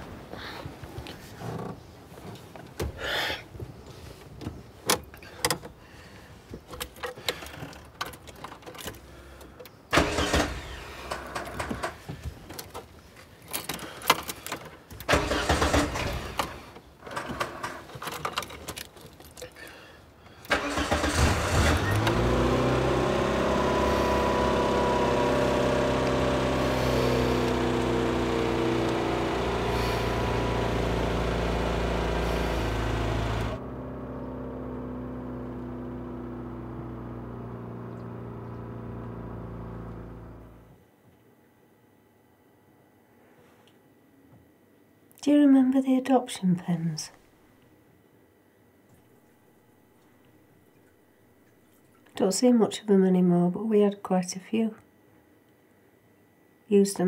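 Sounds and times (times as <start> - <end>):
car engine starting and idling: 8.2 - 12.1, 15.0 - 17.9, 20.4 - 40.8.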